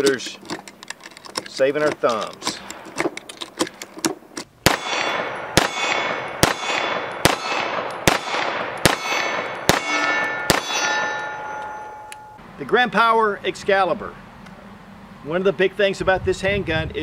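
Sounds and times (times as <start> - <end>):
pistol shots: 4.6 - 11.7
metallic ringing: 4.8 - 12.4.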